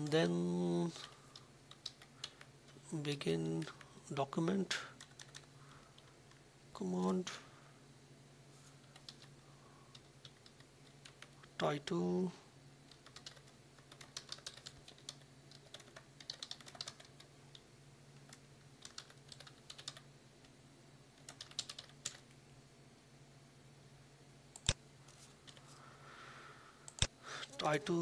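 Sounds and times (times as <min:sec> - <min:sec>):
faint low hum: 0:00.0 - 0:28.0
keyboard typing: 0:01.0 - 0:02.5, 0:05.0 - 0:06.4, 0:08.8 - 0:09.3, 0:09.9 - 0:11.5, 0:12.9 - 0:17.6, 0:18.2 - 0:20.1, 0:21.2 - 0:22.2
sharp keyboard click: 0:12.9 - 0:17.6.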